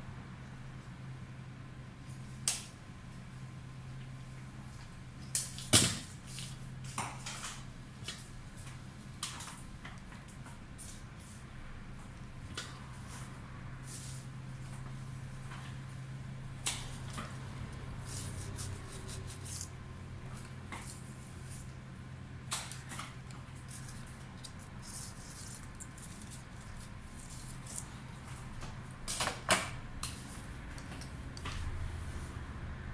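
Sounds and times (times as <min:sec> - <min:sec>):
steady low hum: 0:00.0 - 0:32.9
greenery rustling: 0:23.5 - 0:28.5.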